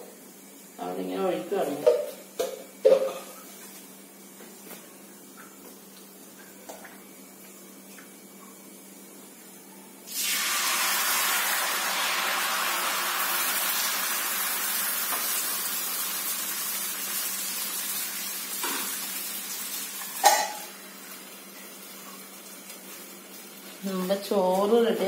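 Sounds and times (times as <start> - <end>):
batter sizzling on a griddle: 7.0 - 25.0.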